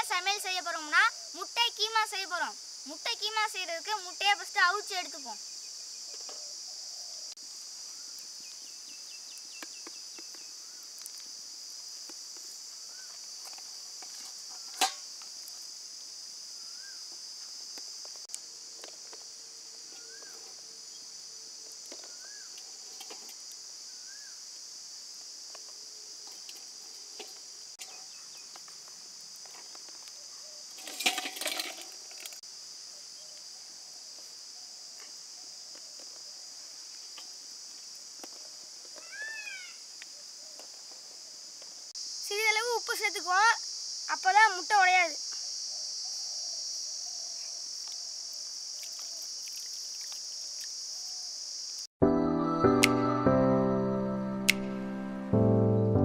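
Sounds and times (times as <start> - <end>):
high-pitched insect drone: 41.9 - 51.9
sharp click: 54.5 - 54.8.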